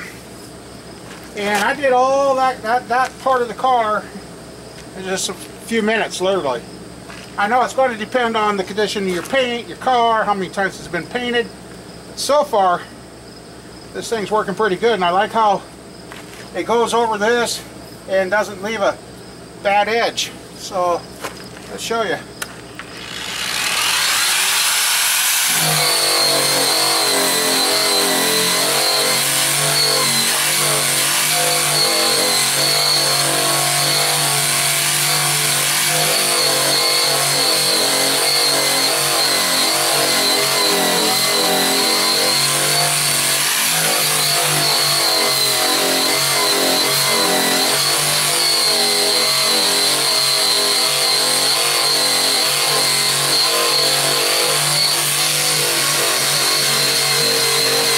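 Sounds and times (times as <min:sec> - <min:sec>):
abrasive disc tool whining: 0:22.8 - 0:57.9.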